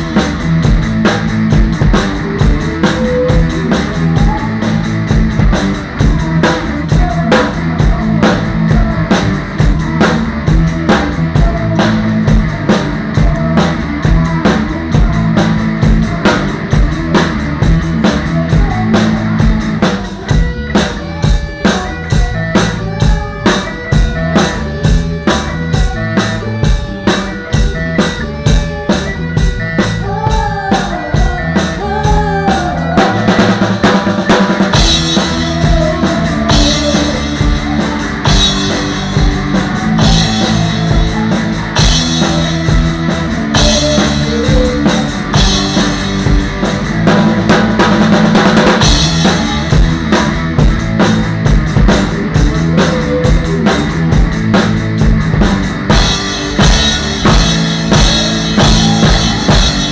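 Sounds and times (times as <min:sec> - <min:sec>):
band playing: 0:00.0 - 0:59.9
drum hits: 0:33.0 - 0:59.9.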